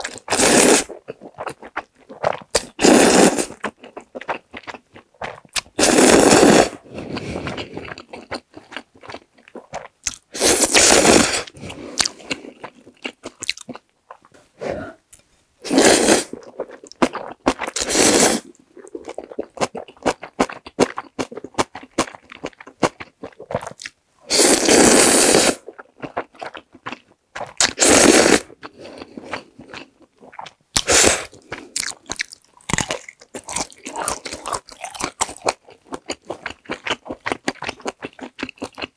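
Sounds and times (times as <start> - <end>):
loud noodle slurping: 0.3 - 1.0, 2.2 - 3.6, 5.8 - 8.0, 10.4 - 12.1, 15.7 - 16.5, 17.7 - 18.5, 24.3 - 25.7, 27.6 - 28.6, 30.8 - 31.4
wet chewing and smacking: 1.0 - 2.8, 3.6 - 5.8, 7.4 - 10.3, 25.7 - 27.8, 28.5 - 38.9.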